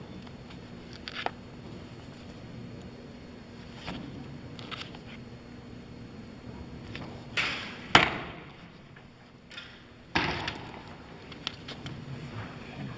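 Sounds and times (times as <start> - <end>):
arrow striking target: 7.4 - 8.6.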